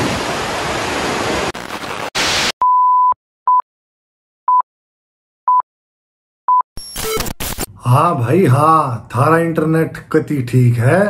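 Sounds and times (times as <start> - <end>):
burst of static hiss: 0.0 - 2.6
electronic beeps: 6.8 - 7.7.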